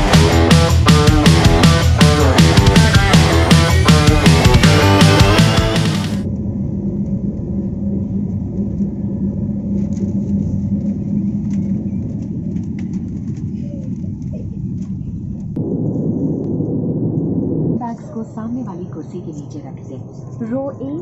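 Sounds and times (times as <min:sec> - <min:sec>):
music: 0:00.0 - 0:06.2
jet cabin rumble: 0:05.9 - 0:21.0.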